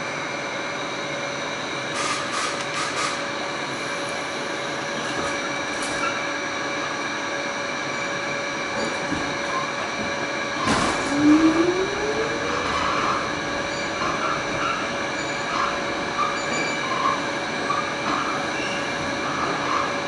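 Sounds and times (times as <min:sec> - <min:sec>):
subway car hum and rolling noise: 0:00.0 - 0:20.0
whine rising in pitch: 0:10.8 - 0:14.9.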